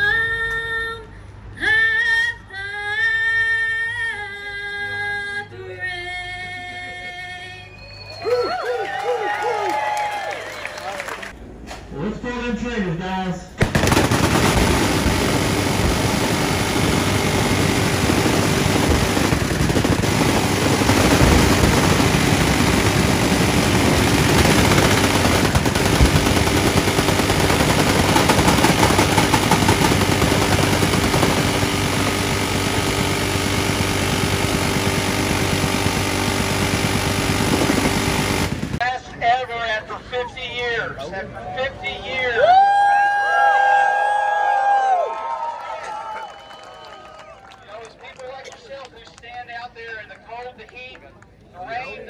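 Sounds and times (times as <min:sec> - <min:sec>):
machine guns firing bursts: 0:13.6 - 0:38.8.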